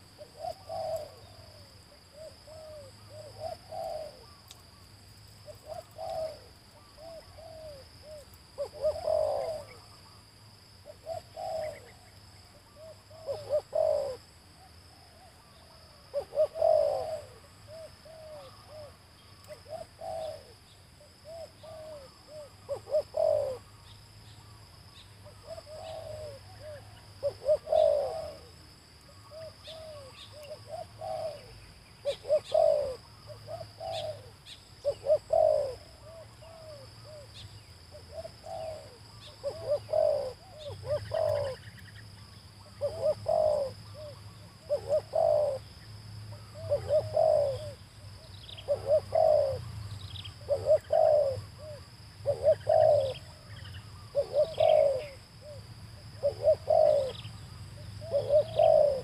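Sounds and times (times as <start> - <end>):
dove cooing: 0.0 - 4.4, 5.4 - 14.3, 14.9 - 24.0, 24.9 - 45.7, 46.3 - 47.8, 48.4 - 59.0
small birds chirping: 0.0 - 10.2, 10.8 - 14.2, 29.2 - 55.6, 56.2 - 59.0.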